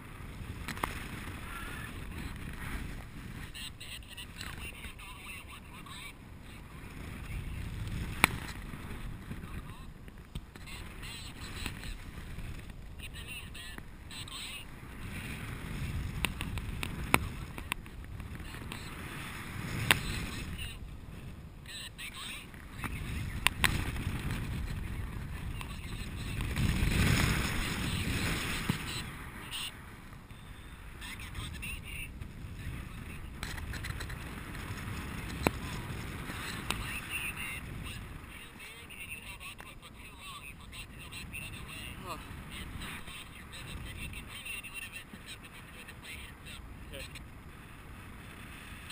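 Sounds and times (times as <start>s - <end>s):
wind rushing over microphone: 0.0s - 48.9s.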